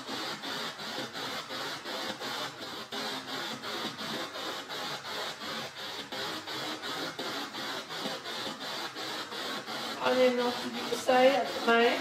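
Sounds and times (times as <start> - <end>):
snatches of broadcast sound: 0.0 - 12.0
pulsing radio static: 10.0 - 12.0.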